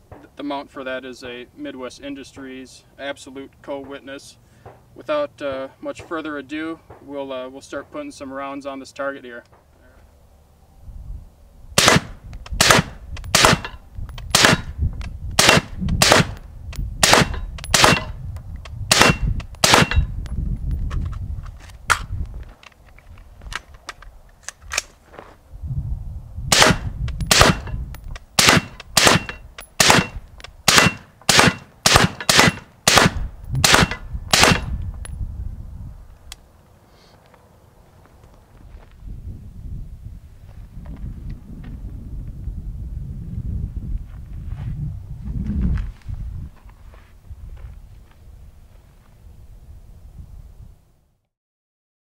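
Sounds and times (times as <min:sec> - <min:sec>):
suppressed rifle shots: 0:11.8 - 0:14.7, 0:15.4 - 0:16.4, 0:17.0 - 0:18.1, 0:18.9 - 0:20.1, 0:26.5 - 0:27.8, 0:28.4 - 0:34.7
bullets ringing off steel plate: 0:28.4 - 0:32.7.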